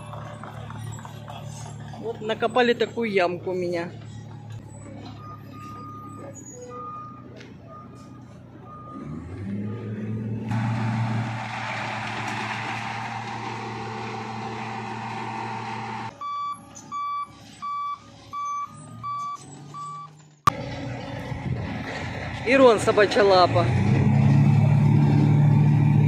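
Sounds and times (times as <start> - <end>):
diesel engine humming: 0.0 - 26.0
reversing alarm beeping: 2.4 - 10.4, 16.0 - 20.2
loud steady rushing noise: 10.5 - 16.1.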